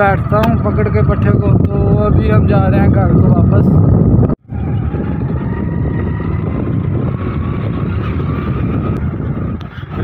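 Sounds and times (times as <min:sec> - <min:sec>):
small vehicle engine running: 0:04.5 - 0:10.0.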